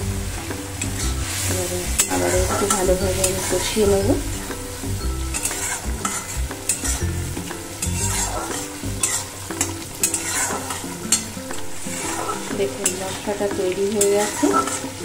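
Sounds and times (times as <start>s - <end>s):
spice paste sizzling in oil: 0.0s - 15.0s
wooden spatula scraping pan: 5.3s - 7.0s, 7.8s - 13.3s.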